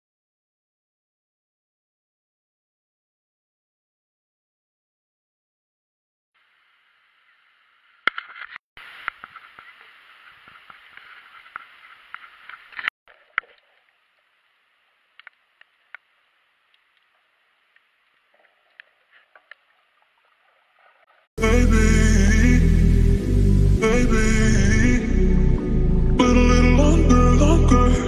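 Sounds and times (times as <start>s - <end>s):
faint clicks underwater: 9.0s - 21.2s.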